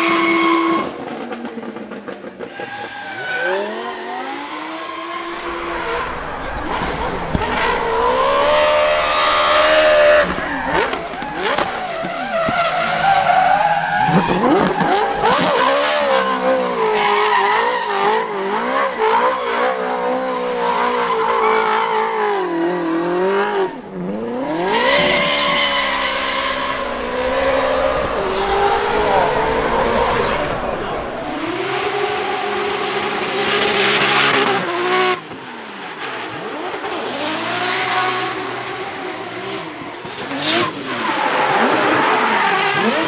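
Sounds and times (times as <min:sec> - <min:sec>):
car engine revving hard: 0:03.4 - 0:43.0
tyres screeching: 0:05.3 - 0:11.6, 0:23.8 - 0:32.2.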